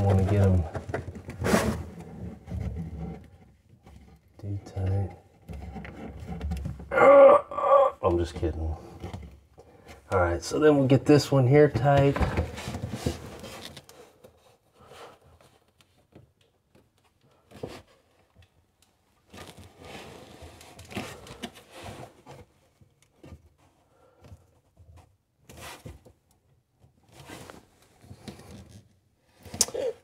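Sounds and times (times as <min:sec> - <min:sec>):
plastic nut scraping and rubbing: 0:00.0 - 0:06.9.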